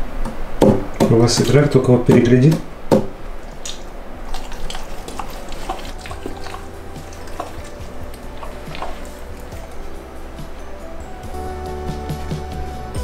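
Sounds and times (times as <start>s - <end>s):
dog licking puppy: 3.4s - 10.5s
quiet background music: 3.9s - 13.0s.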